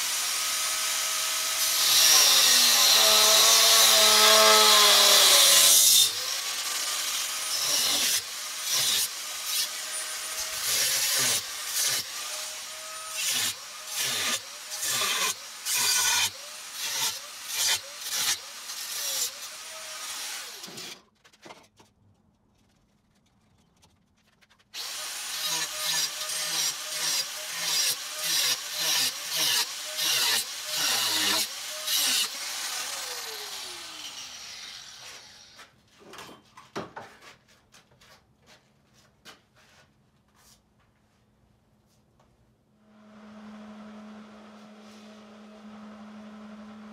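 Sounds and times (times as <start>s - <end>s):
electric power tool working metal: 0.0s - 21.0s, 24.8s - 35.6s.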